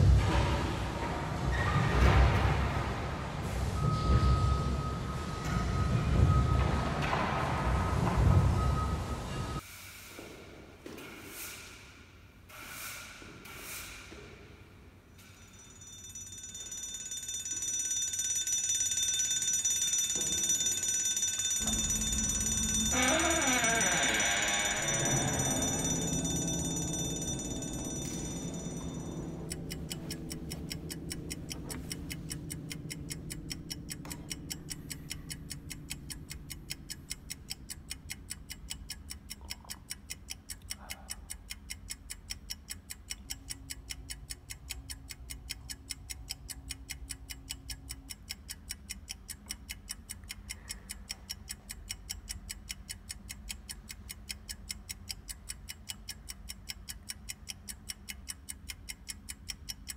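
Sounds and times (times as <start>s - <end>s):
high ringing: 15.2s - 36.9s
clock ticking: 15.6s - 59.9s
low sustained music: 25.0s - 36.7s.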